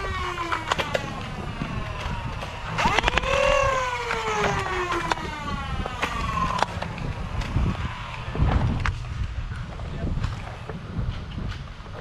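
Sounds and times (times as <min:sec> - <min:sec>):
flywheel motors whining: 0:00.0 - 0:09.3
wind rumble on microphone: 0:00.0 - 0:12.0
sharp clicks: 0:02.0 - 0:05.2.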